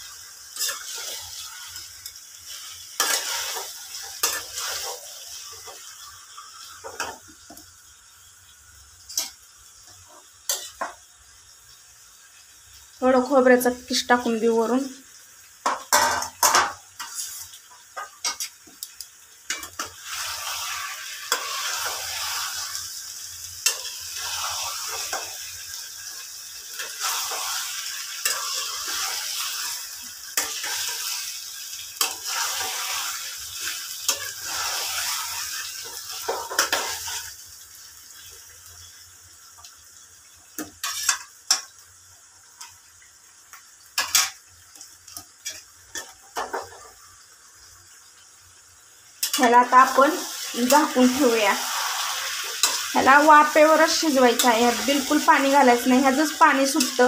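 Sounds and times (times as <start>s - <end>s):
spatula stirring and scraping pan: 0.0s - 7.6s, 9.0s - 11.0s, 15.6s - 18.8s, 19.5s - 37.4s, 40.6s - 41.8s, 44.0s - 47.0s, 49.2s - 57.0s
food sizzling in frying pan: 0.0s - 57.0s.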